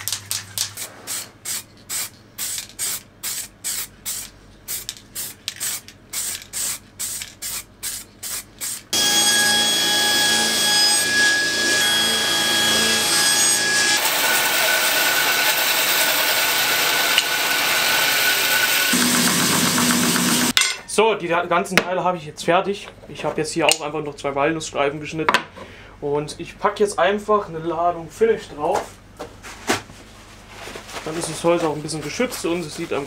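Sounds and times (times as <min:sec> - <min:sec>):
spray can being shaken: 0:00.0 - 0:08.9
band saw cutting wood: 0:08.9 - 0:20.6.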